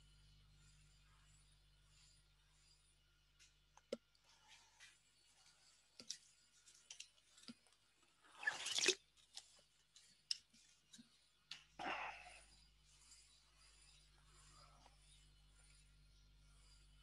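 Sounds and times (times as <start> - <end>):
faint clicks and handling noise: 3.3 - 8.2, 9.0 - 11.8.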